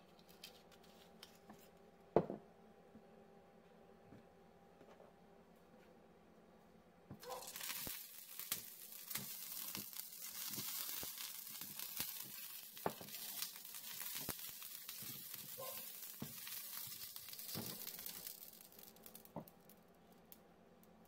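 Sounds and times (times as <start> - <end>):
peppers sizzling in oil: 7.2 - 19.5.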